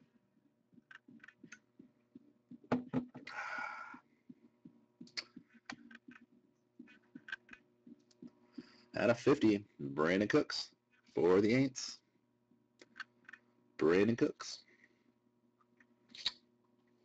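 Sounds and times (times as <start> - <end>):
faint steady hum: 0.0 - 17.0
light clicks and soft thumps: 4.2 - 8.8.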